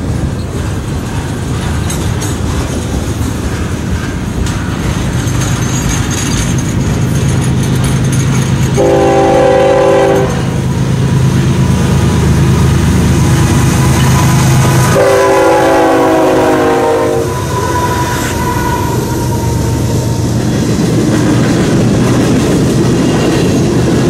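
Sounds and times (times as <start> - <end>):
freight cars rumbling past: 0.0 - 24.0
locomotive engine drone: 0.0 - 24.0
locomotive horn: 8.8 - 10.6, 14.8 - 20.2.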